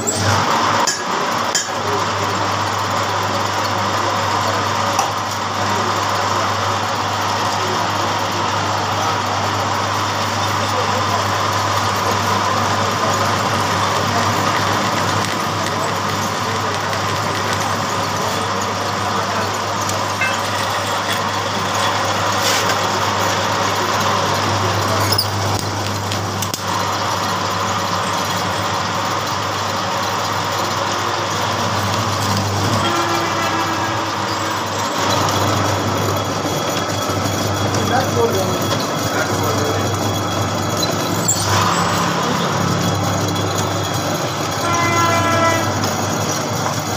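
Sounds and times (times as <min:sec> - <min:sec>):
lathe motor hum: 0:00.4 - 0:46.9
cutting tool scraping metal: 0:19.8 - 0:22.8.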